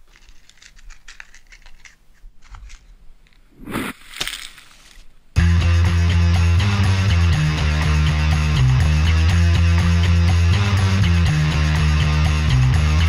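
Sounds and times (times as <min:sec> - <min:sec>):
rush of skis spraying snow: 0:03.6 - 0:05.0.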